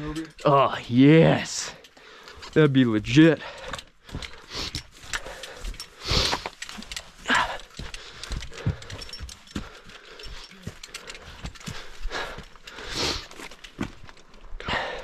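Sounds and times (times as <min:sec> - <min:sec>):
boot footsteps on rocky ground: 0:03.4 - 0:12.6, 0:13.3 - 0:14.4
breathy bursts: 0:03.4 - 0:13.5, 0:14.6 - 0:15.0.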